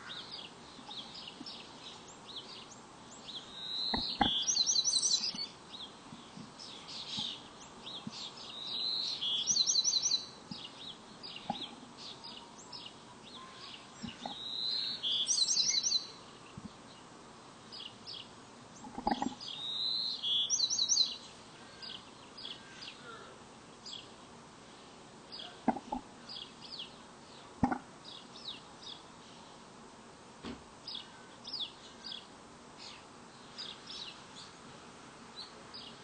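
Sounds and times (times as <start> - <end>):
chickadee calls: 0.0 - 16.7, 17.8 - 24.0.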